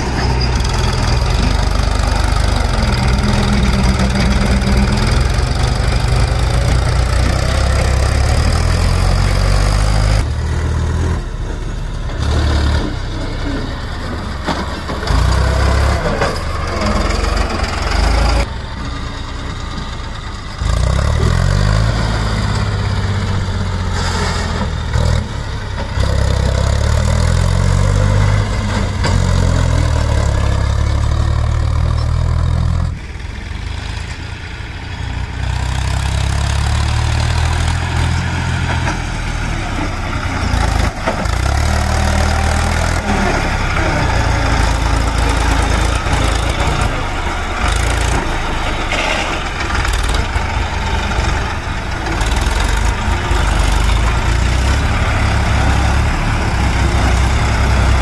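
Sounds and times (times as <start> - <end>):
tractor diesel engine running: 0.0 - 58.0.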